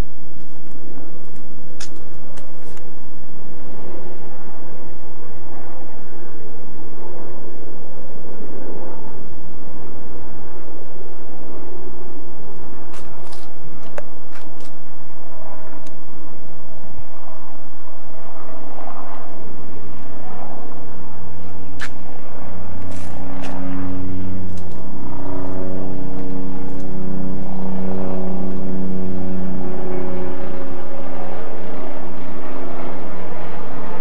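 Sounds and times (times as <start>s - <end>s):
vehicle engine humming: 0.0s - 34.0s.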